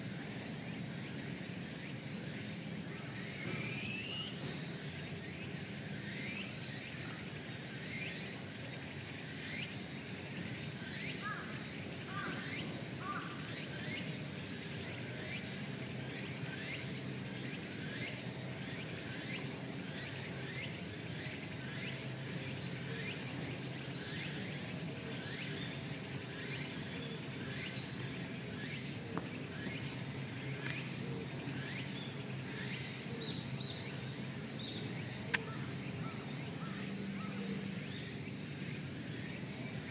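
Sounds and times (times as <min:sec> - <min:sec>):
steady low hum: 0:00.0 - 0:39.9.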